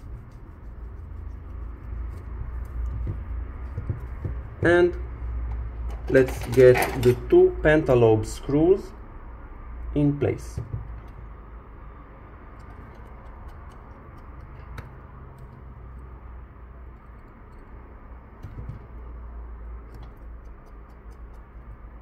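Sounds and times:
low steady hum: 0.0s - 22.0s
precision screwdriver ticking: 12.6s - 16.0s, 19.8s - 21.8s.

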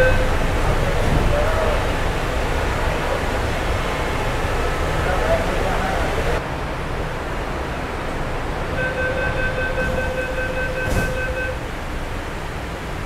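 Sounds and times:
sliding doors shutting: 0.0s - 6.4s, 8.8s - 12.8s
train car hum: 0.0s - 13.0s
rapid high warning beeps: 8.8s - 11.6s
thump: 10.8s - 11.3s.

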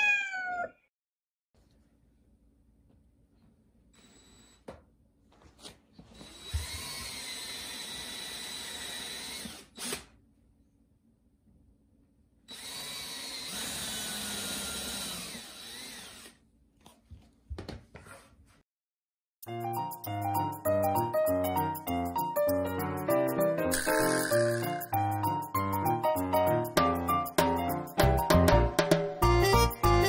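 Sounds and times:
cordless drill boring into wood: 6.2s - 10.1s, 12.5s - 16.4s.

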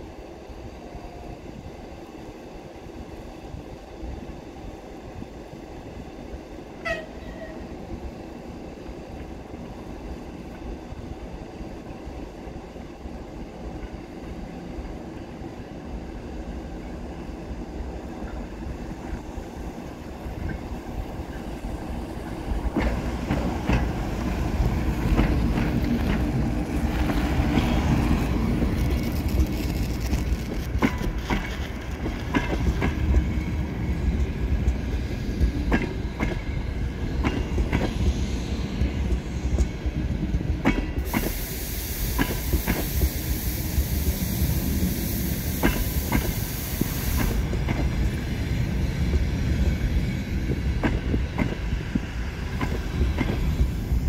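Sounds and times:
train rumbling past: 0.0s - 54.0s
loud hiss: 41.0s - 47.5s.

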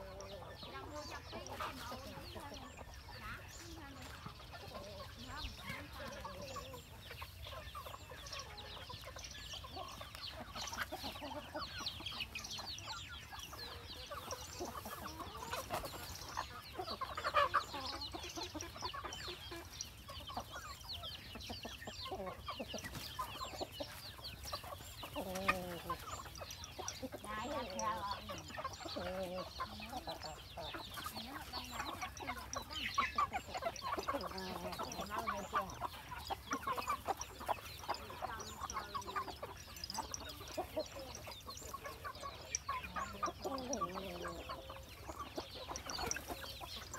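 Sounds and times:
chickens clucking and chirping: 0.0s - 46.9s.

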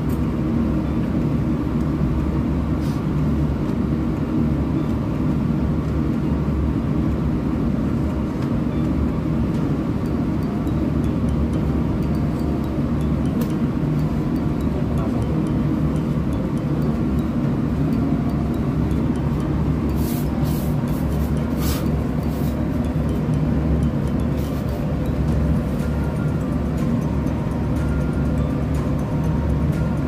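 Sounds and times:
machinery droning: 0.0s - 30.0s.

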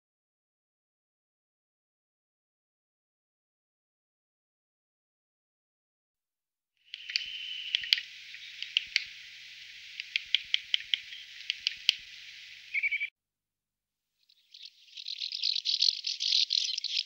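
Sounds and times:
bird calling sharp notes: 6.9s - 13.1s, 14.3s - 17.0s
whistled bird note: 6.9s - 13.1s, 14.4s - 17.0s.

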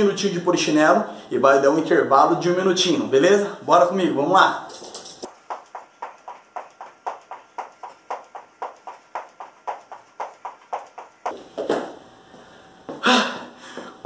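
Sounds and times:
sneakers thumping on floor: 5.3s - 12.0s.

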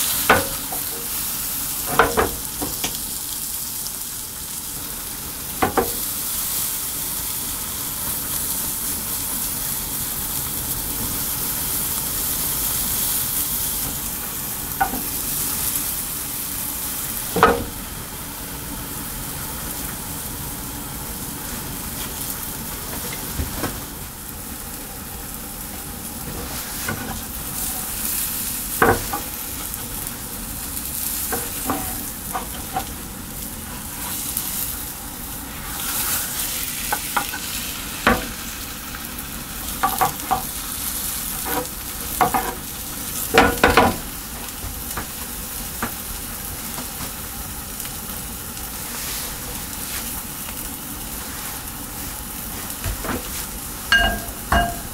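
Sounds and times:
omelette sizzling in a pan: 0.0s - 54.9s
spatula tapping a pan: 53.9s - 54.9s.

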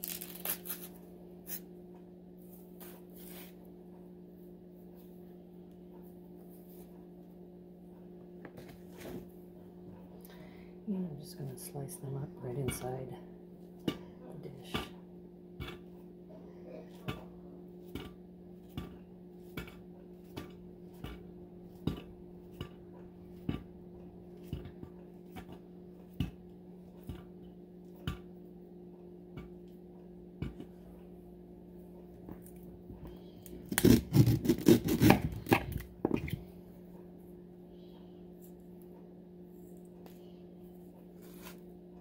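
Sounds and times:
low steady hum: 0.0s - 42.0s
knife slicing bananas: 33.6s - 35.8s.

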